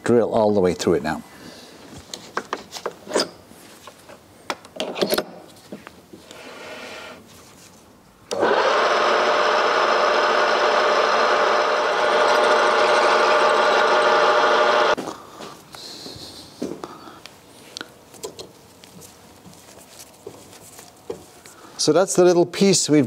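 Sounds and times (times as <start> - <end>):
drill bit boring through nylon: 8.3 - 15.0
metal lathe running: 8.3 - 15.0.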